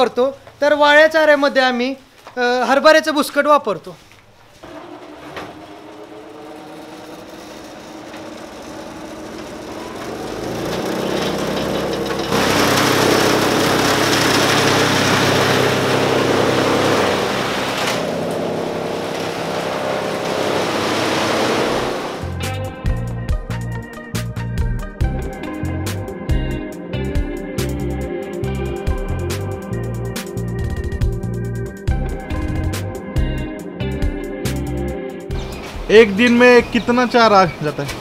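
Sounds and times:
electric chaff cutter chopping fodder: 4.6 - 22.4.

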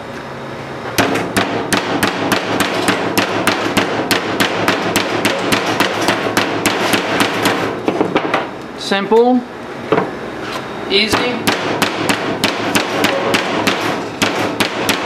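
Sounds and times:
meat mallet pounding meat: 1.0 - 8.5, 11.1 - 15.0.

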